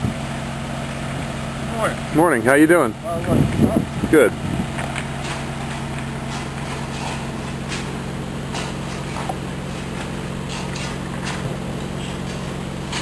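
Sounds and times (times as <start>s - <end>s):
low mechanical hum: 0.0s - 13.0s
footsteps crunching on crushed stone: 4.8s - 13.0s.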